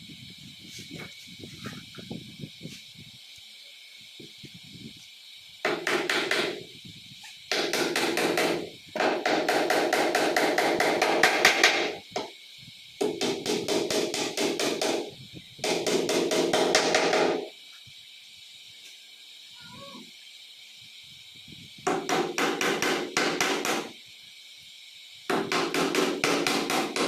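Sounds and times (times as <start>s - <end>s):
hammer tapping nails into wood: 25.3s - 27.0s.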